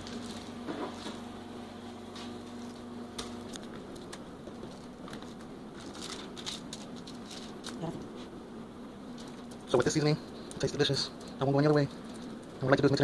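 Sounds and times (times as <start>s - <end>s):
aluminium foil crinkling: 0.0s - 1.3s, 2.1s - 8.3s, 9.0s - 13.0s
steady low hum: 0.0s - 13.0s.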